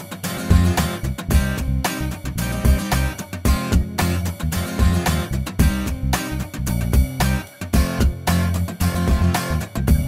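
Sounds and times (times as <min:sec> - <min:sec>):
bass: 0:00.0 - 0:10.0
steady drum beat: 0:00.0 - 0:10.0
strummed guitar: 0:00.0 - 0:10.0.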